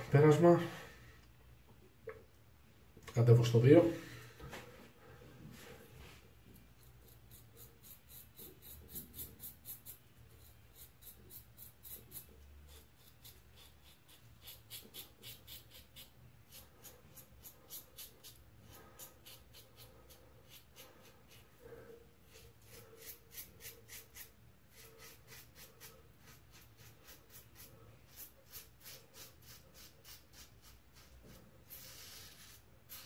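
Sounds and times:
razor scraping stubble: 6.7s - 21.5s, 22.2s - 33.0s.

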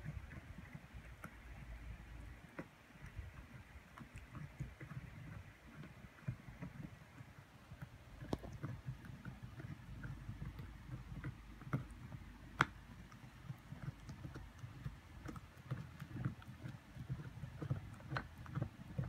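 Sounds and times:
puppies chewing on a bone: 0.0s - 19.0s.

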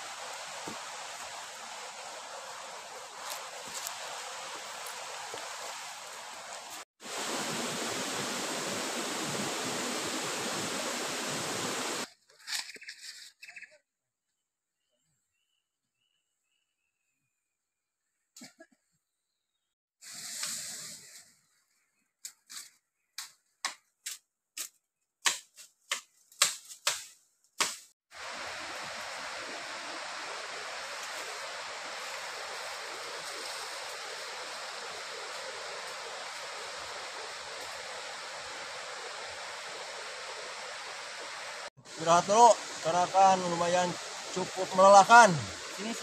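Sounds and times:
running water rushing: 0.0s - 12.1s, 28.1s - 46.0s.

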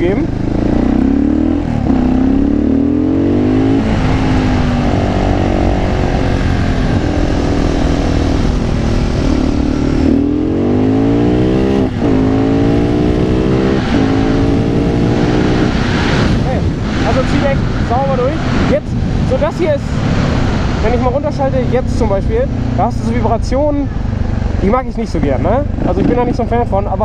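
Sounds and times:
wind rush: 0.0s - 24.7s
motorcycle engine accelerating: 0.0s - 27.0s.

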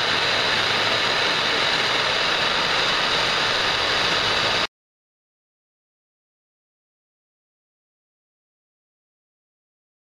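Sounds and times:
gas torch flame hissing: 0.0s - 4.7s.

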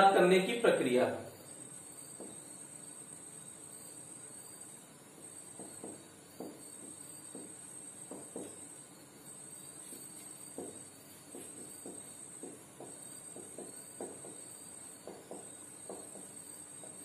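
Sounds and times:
high-pitched background hiss: 0.0s - 17.0s
marker writing on whiteboard: 5.4s - 8.7s, 9.7s - 17.0s.

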